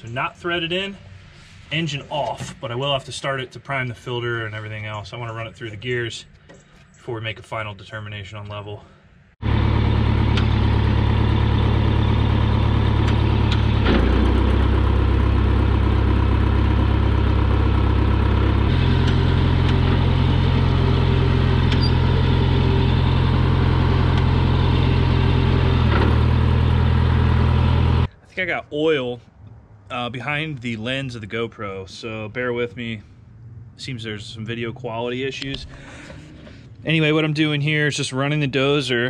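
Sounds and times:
diesel engine running: 0:09.4 - 0:28.1.

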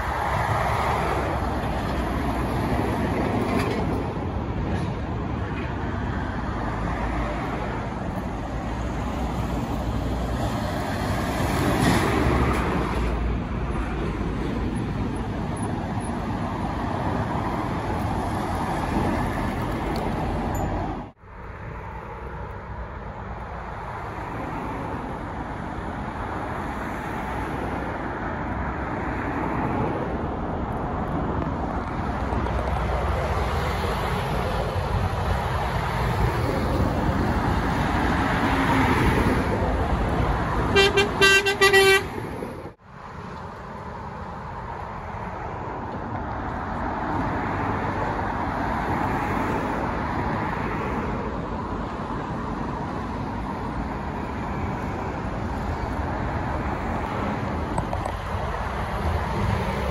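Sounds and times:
traffic passing on road: 0:00.0 - 0:59.9
horn short toots: 0:40.7 - 0:42.1.

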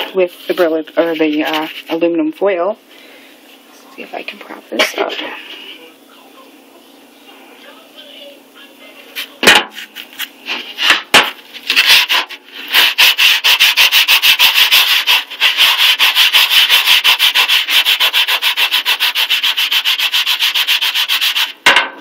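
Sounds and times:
foil scrubbing metal sheet: 0:00.0 - 0:02.0, 0:09.7 - 0:21.6.

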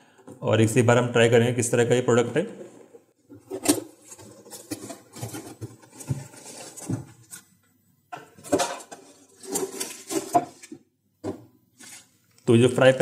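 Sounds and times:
cardboard scraping and rubbing: 0:03.4 - 0:07.4, 0:08.5 - 0:10.7.

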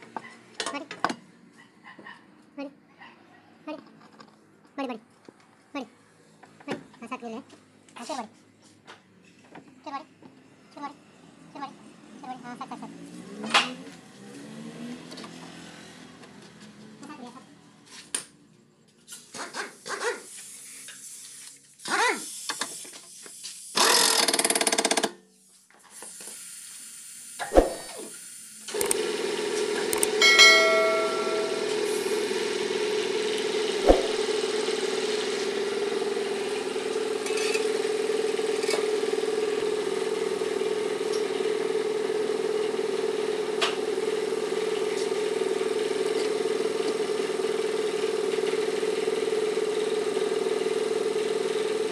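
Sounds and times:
brief tone: 0:30.2 - 0:32.4.

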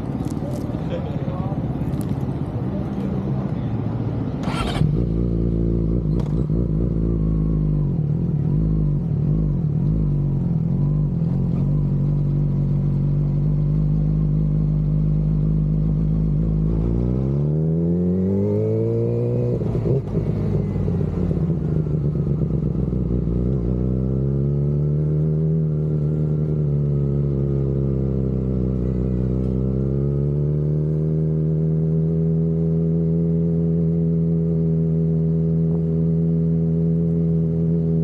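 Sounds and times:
motorcycle engine revving: 0:04.3 - 0:38.0.

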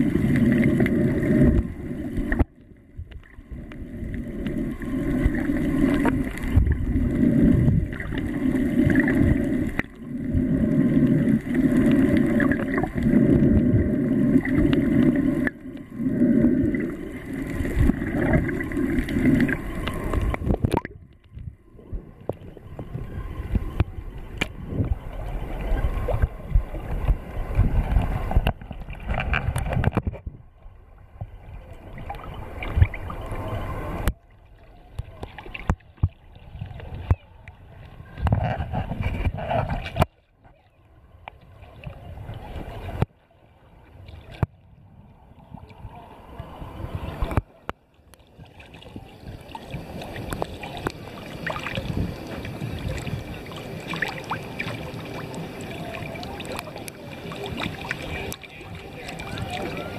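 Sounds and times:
muffled underwater water sound: 0:00.0 - 0:59.9.

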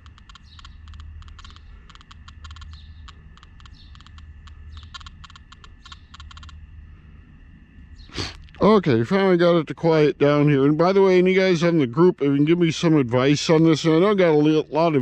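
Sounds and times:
rapid clicky beeps: 0:00.0 - 0:06.6
faint steady tone: 0:00.0 - 0:15.0.

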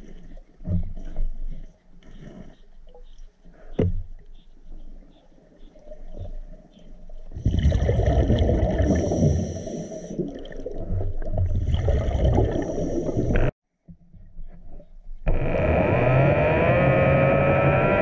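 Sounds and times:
bubbles gurgling underwater: 0:07.4 - 0:13.5
hissing regulator breaths: 0:08.9 - 0:10.2.

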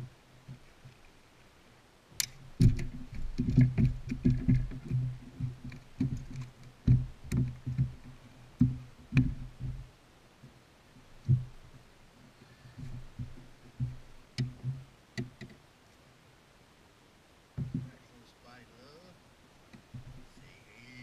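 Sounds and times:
sharp clicks: 0:02.2 - 0:02.8
thumps and knocks on boat deck: 0:02.6 - 0:09.9, 0:12.8 - 0:15.5, 0:17.6 - 0:18.0.

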